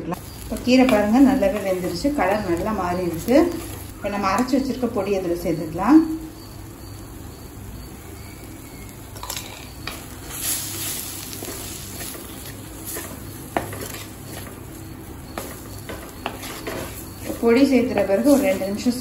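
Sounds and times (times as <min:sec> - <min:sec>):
faint sizzle: 0:00.0 - 0:19.0
spatula scraping in clay pot: 0:15.3 - 0:18.8.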